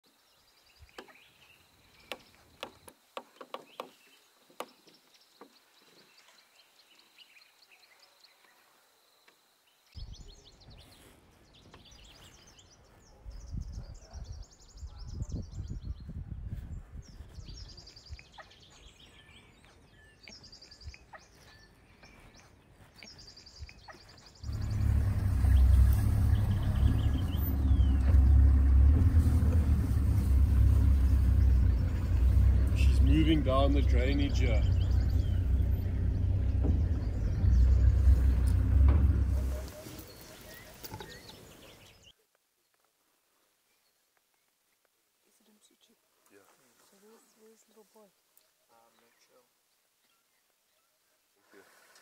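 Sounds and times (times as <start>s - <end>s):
birds chirping and calling: 0.4s - 8.6s, 10.0s - 42.1s
low rumble: 24.4s - 40.2s.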